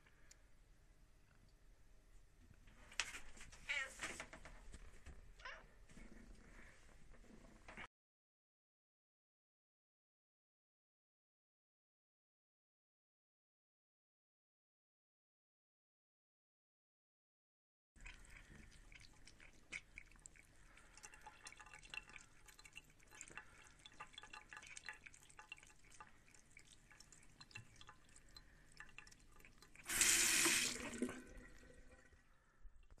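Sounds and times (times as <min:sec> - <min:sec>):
cat lapping water: 0:18.0 - 0:32.2
running tap trickle: 0:18.0 - 0:32.2.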